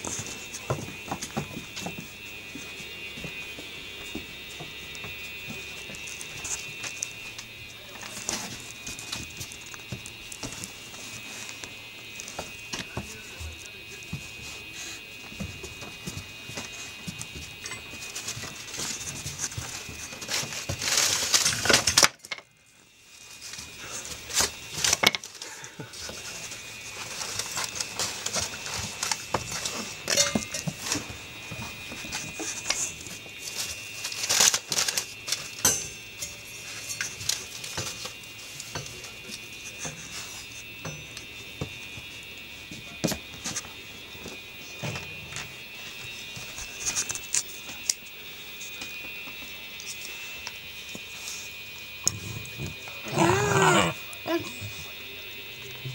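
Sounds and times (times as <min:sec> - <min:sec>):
puppies scuffling: 0:00.0 - 0:22.1, 0:23.1 - 0:35.6
paper crinkling: 0:18.0 - 0:22.0, 0:23.2 - 0:35.6.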